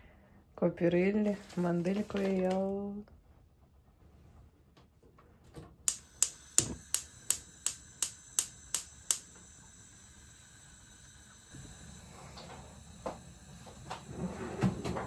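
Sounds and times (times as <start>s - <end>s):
stove spark igniter clicking: 5.8s - 14.1s.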